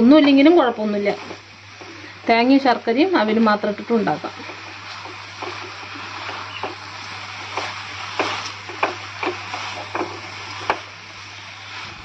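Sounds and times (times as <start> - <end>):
spatula scraping and knocking pan: 3.7 - 11.0.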